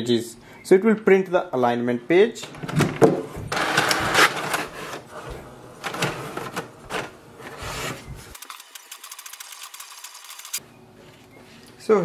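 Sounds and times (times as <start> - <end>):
inkjet printer clicks and whirs: 8.4 - 10.6
rapid printer ticking: 8.4 - 10.6.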